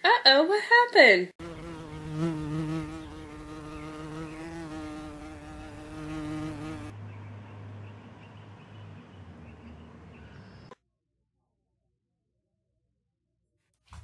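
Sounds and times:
flying insect buzzing: 1.4s - 6.9s.

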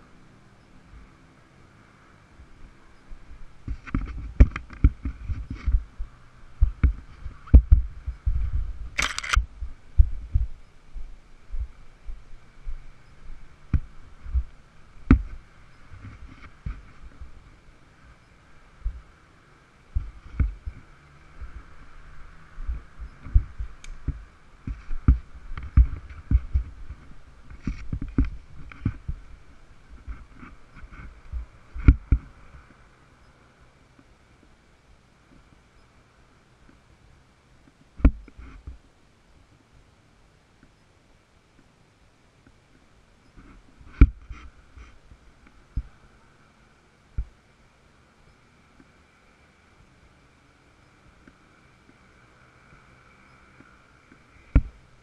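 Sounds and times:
faint engine hum: 0.0s - 55.0s
muffled thumps and knocks: 3.6s - 10.6s, 15.1s - 17.3s, 20.0s - 20.8s, 22.6s - 29.2s, 30.0s - 32.4s, 43.4s - 45.0s.

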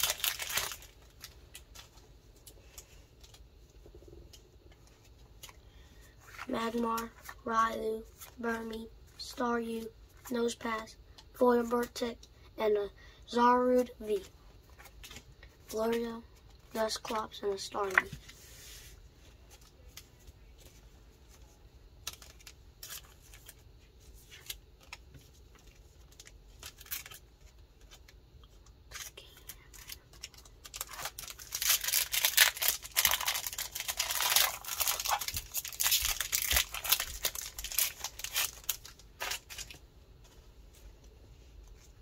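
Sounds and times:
foil wrapper crinkling and tearing: 0.0s - 1.9s, 22.0s - 23.6s, 24.3s - 28.2s, 28.9s - 39.8s.

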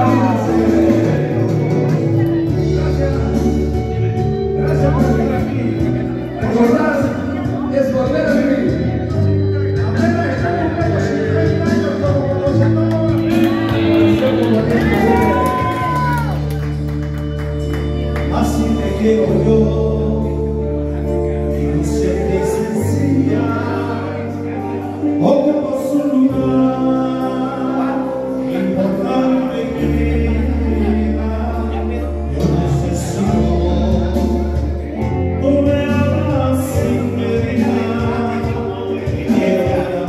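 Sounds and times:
man singing into a microphone: 0.0s - 16.4s, 17.9s - 40.0s
instrumental accompaniment: 0.0s - 40.0s.

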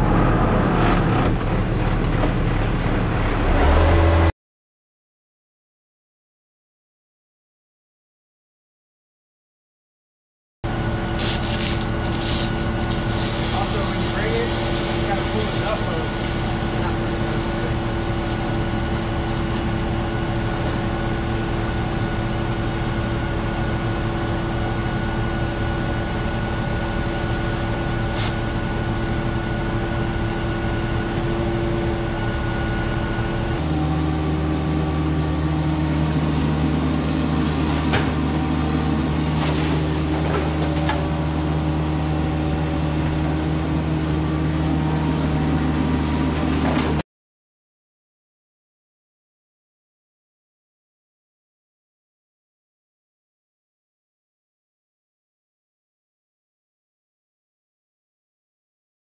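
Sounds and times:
truck engine and vacuum pump running: 0.0s - 4.3s, 10.7s - 47.0s.

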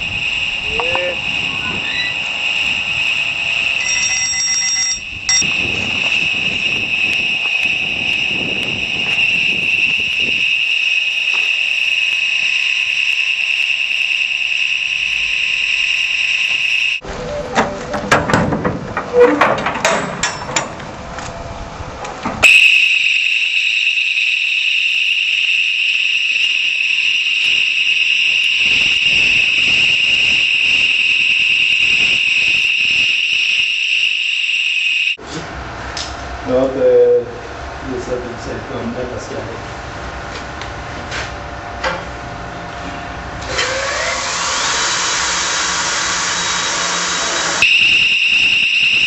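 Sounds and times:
high-pitched alarm tone: 0.0s - 17.6s, 22.4s - 35.2s, 46.6s - 49.0s.

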